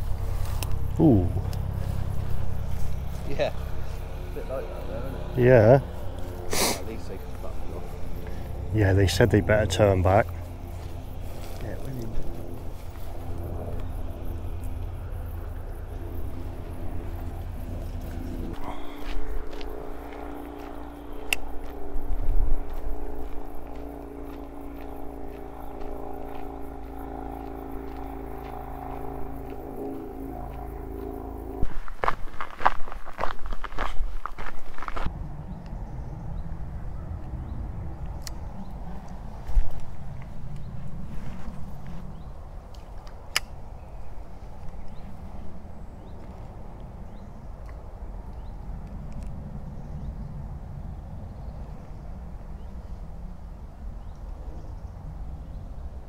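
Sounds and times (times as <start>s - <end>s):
steady drone with held tones: 0.0s - 33.3s
low rumble of wind: 0.0s - 56.0s.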